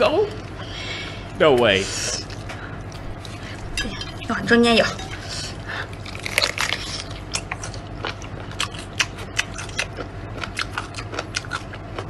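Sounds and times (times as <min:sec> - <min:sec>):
person chewing food: 0:02.2 - 0:04.3, 0:05.0 - 0:12.0.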